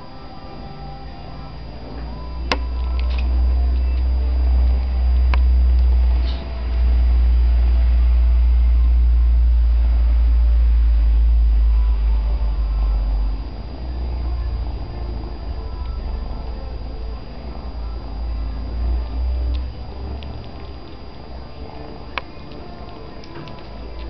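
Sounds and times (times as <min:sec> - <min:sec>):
cats purring: 0:09.6 - 0:24.0.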